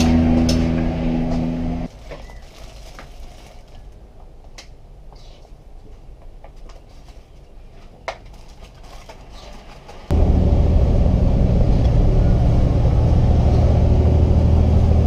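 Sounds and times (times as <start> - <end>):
loud steady engine-like hum: 0.0 - 1.9, 10.1 - 15.0.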